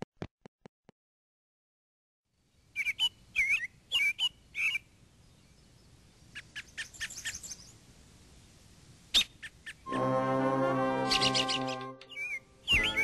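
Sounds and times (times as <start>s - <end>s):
faint background hiss: 2.3s - 13.0s
birds chirping: 2.5s - 7.8s, 11.0s - 13.0s.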